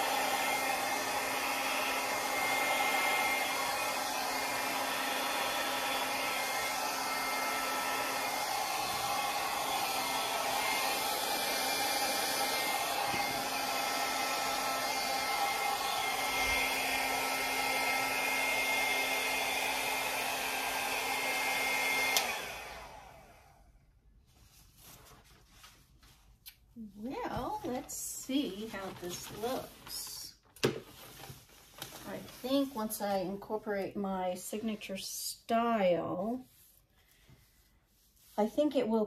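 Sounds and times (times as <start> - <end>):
hair dryer running: 0.0 - 23.8
hair dryer switch click: 22.1 - 22.4.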